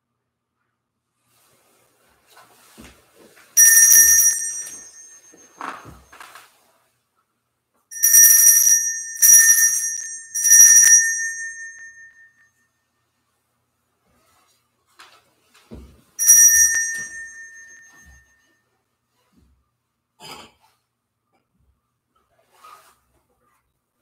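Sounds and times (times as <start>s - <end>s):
altar bell ringing: 3.6s - 6.0s, 7.9s - 12.4s, 16.2s - 18.4s.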